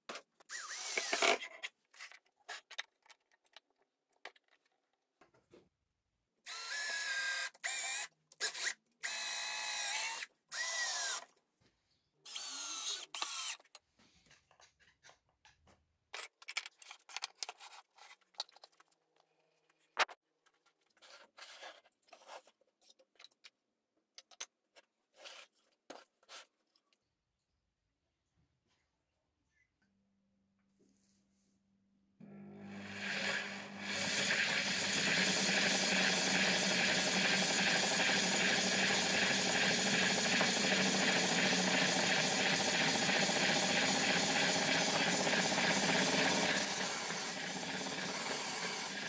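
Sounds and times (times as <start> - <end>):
cordless drill whining: 0.5 - 1.4, 6.5 - 11.3, 12.3 - 13.7, 32.7 - 49.0.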